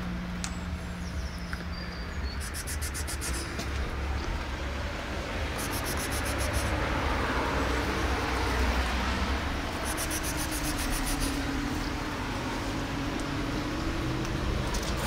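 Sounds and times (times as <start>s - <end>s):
high-pitched insect chirping: 2.4s - 3.4s, 5.6s - 6.8s, 9.8s - 11.3s.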